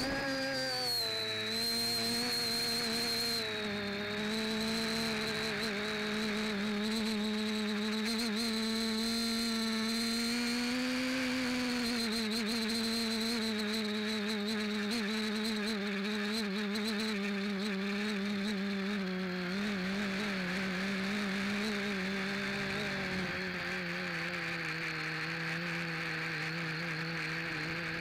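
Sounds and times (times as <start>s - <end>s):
quadcopter motors whining: 0.0s - 28.0s.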